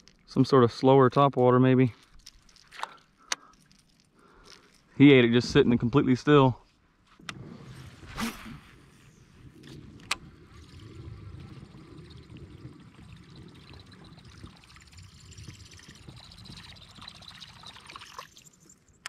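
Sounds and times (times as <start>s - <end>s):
water lapping around a hull: 7.2s - 19.0s.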